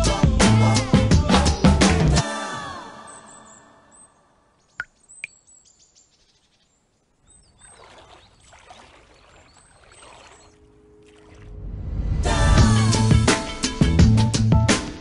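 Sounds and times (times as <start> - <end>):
music: 0.0 - 3.4, 11.8 - 15.0
high bird chirps: 3.0 - 10.6
swimmer splashing in pool: 7.6 - 11.6.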